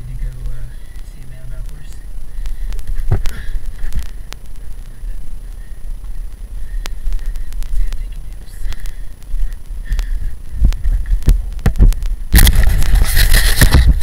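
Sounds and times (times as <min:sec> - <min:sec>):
low rumble: 0:00.0 - 0:13.1
hand rubbing on microphone: 0:10.5 - 0:14.0.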